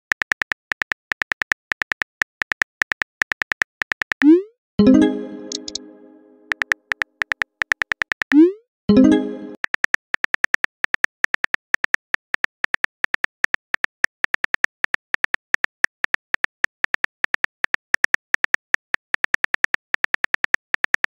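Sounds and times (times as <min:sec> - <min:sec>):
short chime-like tone: 0:04.8 - 0:06.5
phone keyboard typing clicks: 0:05.4 - 0:05.8.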